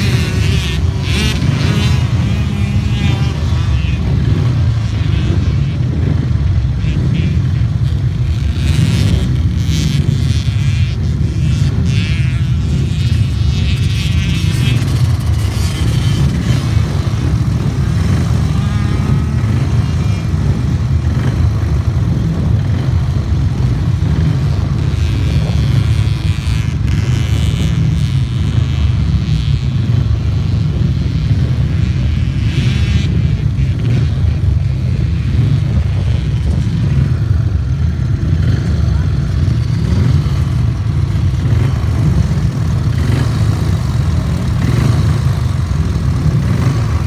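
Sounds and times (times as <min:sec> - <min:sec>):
motorcycles buzzing: 0:00.0 - 0:47.0
heavy low rumble: 0:12.5 - 0:27.0, 0:33.1 - 0:47.0.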